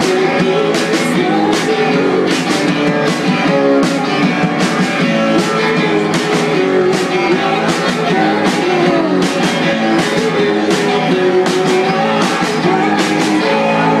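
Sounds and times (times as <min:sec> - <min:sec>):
drums: 0:00.0 - 0:14.0
electric guitar: 0:00.0 - 0:14.0
person singing: 0:00.0 - 0:14.0.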